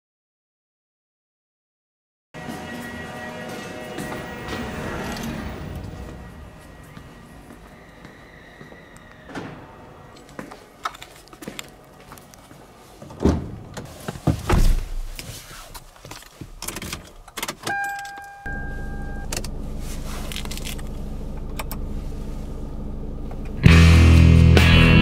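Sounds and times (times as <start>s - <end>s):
clicks and handling noises: 10.2s - 12.5s, 19.2s - 21.8s
car door shutting: 13.1s - 15.2s
two-tone warning chime: 17.7s - 19.4s
car engine idling: 18.5s - 25.0s.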